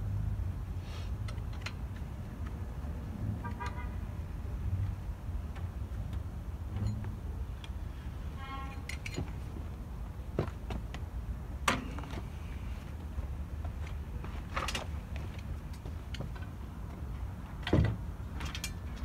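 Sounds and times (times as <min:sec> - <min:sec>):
bicycle metal parts clicking: 0:08.7 - 0:09.4, 0:18.4 - 0:19.0.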